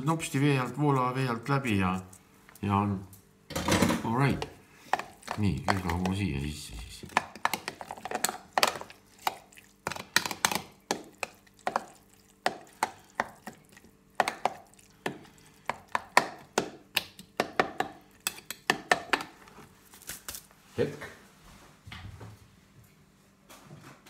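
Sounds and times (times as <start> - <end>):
spoon stirring in a jug: 4.2 - 19.7.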